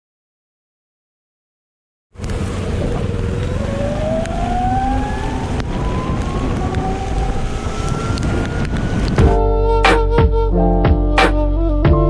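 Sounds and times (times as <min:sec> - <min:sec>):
electric scooter motor whine: 0:02.2 - 0:09.4
tyre noise on wet road: 0:02.2 - 0:09.4
wind rushing: 0:02.4 - 0:10.2.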